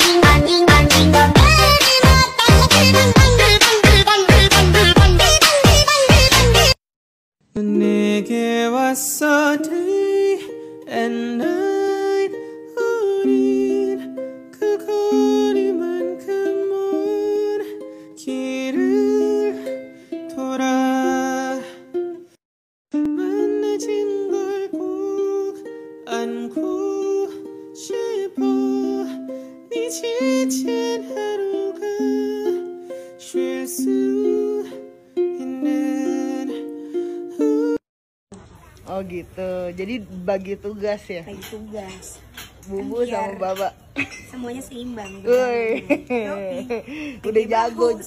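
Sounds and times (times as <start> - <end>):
light plucked melody: 9.6 - 22.2, 23.0 - 37.8.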